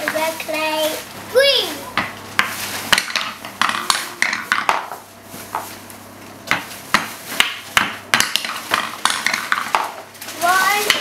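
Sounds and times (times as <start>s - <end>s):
wooden mallet knocking wooden balls: 2.0s - 5.0s, 6.5s - 10.0s.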